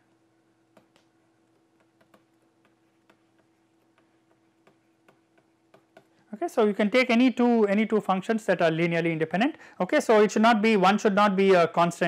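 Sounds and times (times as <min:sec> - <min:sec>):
faint steady hum: 0:00.0 - 0:12.0
stylus tapping on tablet: 0:00.7 - 0:06.2.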